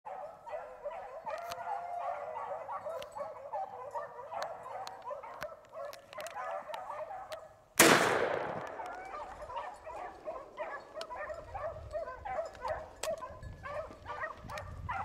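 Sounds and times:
dogs baying and yelping: 0.1s - 7.6s, 8.8s - 15.0s
shotgun blast: 7.8s - 9.0s.

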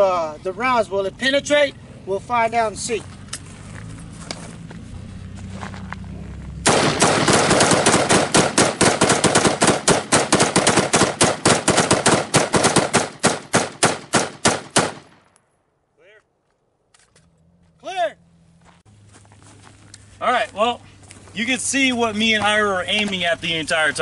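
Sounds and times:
rapid rifle shots: 6.7s - 15.2s.

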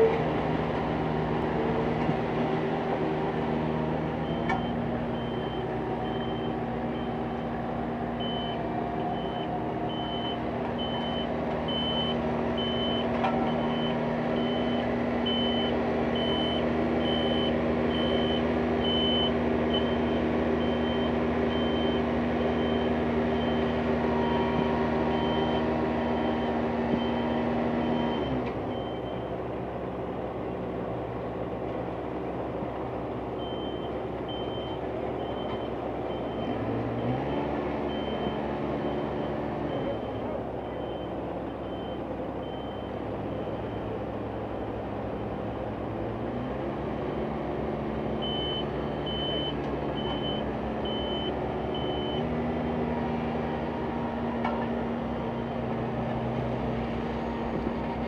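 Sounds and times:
heavy equipment engine running: 0.0s - 58.0s
reversing alarm beeping: 4.2s - 7.2s, 8.2s - 29.3s, 33.4s - 44.0s, 48.2s - 52.3s.

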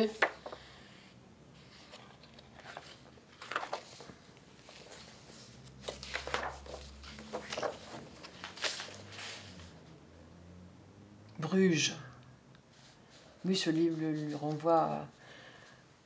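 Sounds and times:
paper rustling: 0.0s - 0.6s, 1.6s - 9.7s, 12.8s - 15.0s.

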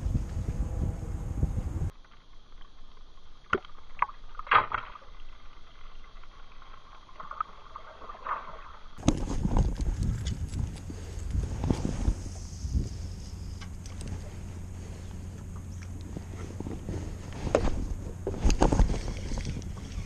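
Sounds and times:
wind noise on microphone: 0.0s - 1.9s, 9.0s - 20.0s
water sloshing against boat hull: 9.0s - 20.0s.

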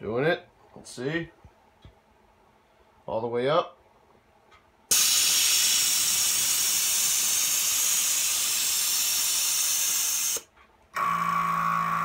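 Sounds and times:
air hissing from release valve: 4.9s - 10.5s.

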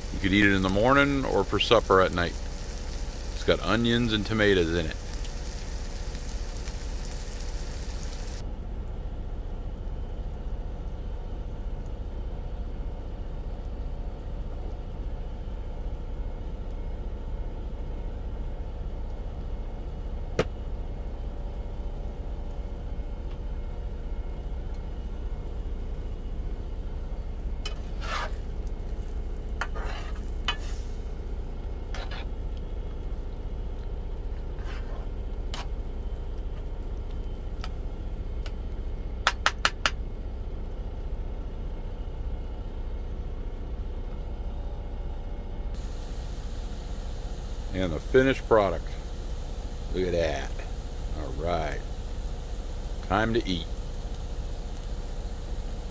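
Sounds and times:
egg frying: 0.0s - 8.4s, 25.2s - 38.9s, 45.8s - 55.9s
food sizzling in a frying pan: 0.0s - 8.4s, 27.7s - 32.2s, 45.8s - 55.9s
low hum: 0.0s - 29.6s, 40.2s - 55.9s
spatula scraping a pan: 27.7s - 28.5s, 29.6s - 31.0s, 31.9s - 32.3s, 34.6s - 35.7s.

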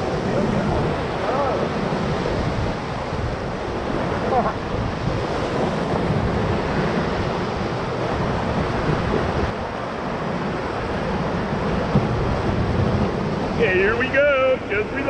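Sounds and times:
whitewater rapids rushing: 0.0s - 15.0s
wind noise on microphone: 0.0s - 15.0s.

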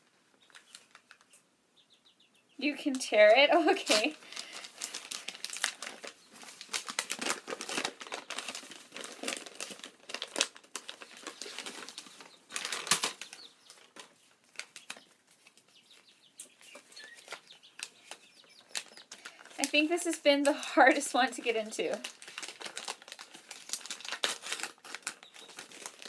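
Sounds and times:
paper crinkling and rustling: 3.2s - 20.9s, 21.5s - 26.0s
paper envelope tearing: 3.7s - 13.4s, 22.0s - 26.0s.

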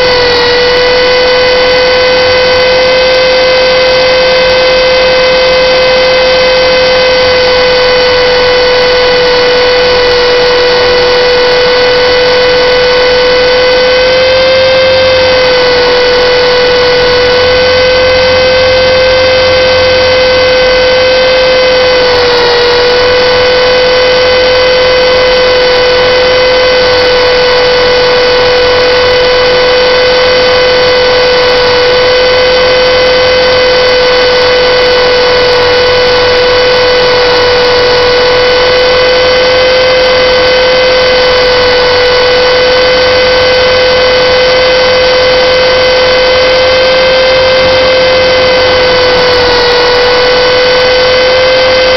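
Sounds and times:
rc helicopter motor whine: 0.0s - 51.9s.

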